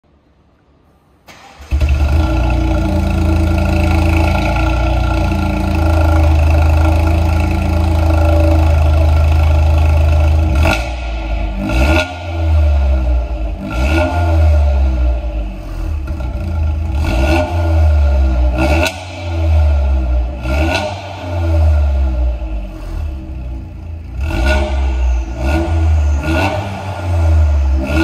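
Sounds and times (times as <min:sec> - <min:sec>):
car engine starting: 0:01.1 - 0:28.0
engine throttle blips: 0:01.3 - 0:17.6
loud engine idle: 0:01.8 - 0:11.3.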